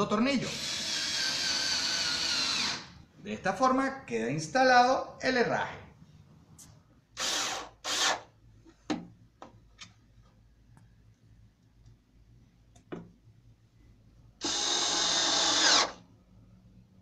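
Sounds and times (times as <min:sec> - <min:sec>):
cordless screwdriver running: 0:00.5 - 0:02.9, 0:14.4 - 0:16.0.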